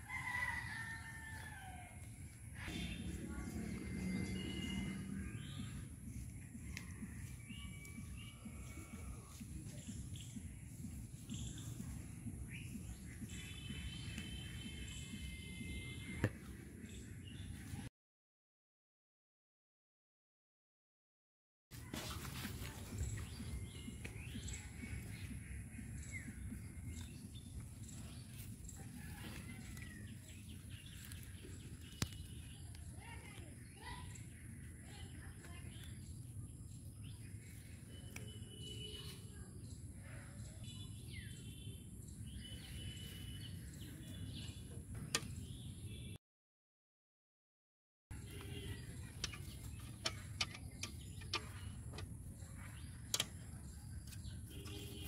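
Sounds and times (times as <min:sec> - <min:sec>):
birds chirping: 0:02.0 - 0:17.9, 0:22.5 - 0:46.2, 0:48.1 - 0:55.0.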